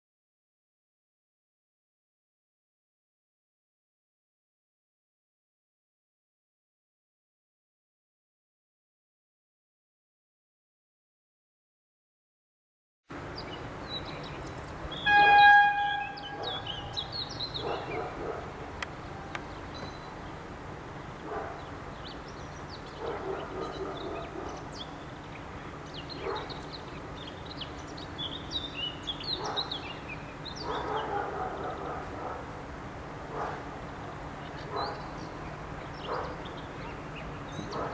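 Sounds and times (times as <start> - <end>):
diesel locomotive engine drone: 13.1 - 37.7
locomotive horn blast: 14.9 - 17.1
dog barking: 16.2 - 16.9, 17.6 - 18.7, 21.2 - 21.7, 23.0 - 24.7, 26.2 - 26.6, 29.3 - 29.8, 30.6 - 32.6, 33.3 - 33.7, 34.7 - 35.1, 36.0 - 36.4, 37.7 - 37.9.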